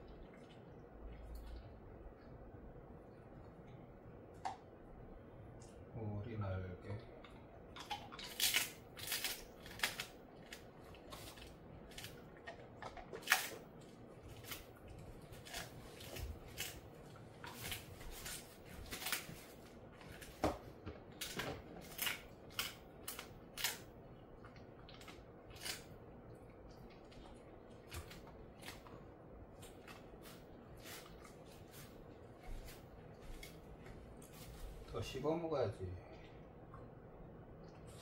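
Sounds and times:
dog chewing crunchy treat: 7.1 - 34.5.

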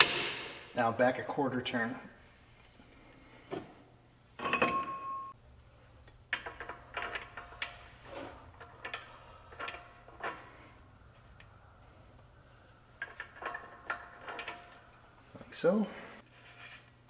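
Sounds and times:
steel parts clinking: 6.1 - 10.7, 12.8 - 15.0.

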